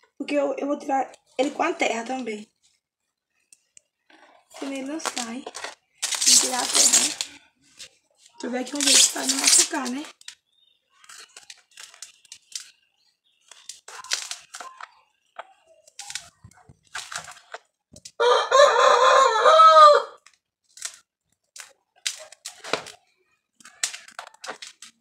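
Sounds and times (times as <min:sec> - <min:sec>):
blade scraping into soil: 0:04.6 - 0:07.2
rooster crowing: 0:18.2 - 0:20.2.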